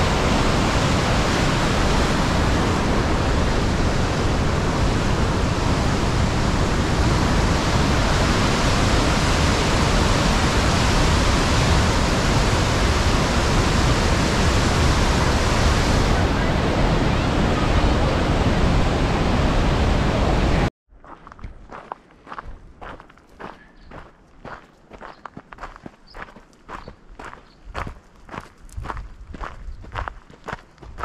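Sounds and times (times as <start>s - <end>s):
waterfall roaring: 0.0s - 20.7s.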